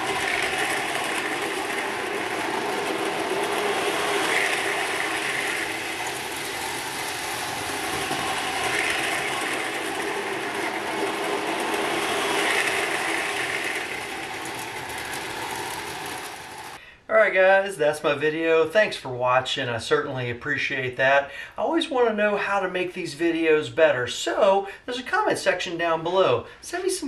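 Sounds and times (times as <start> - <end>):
toy train motor whir and rumble: 0.0 - 16.8.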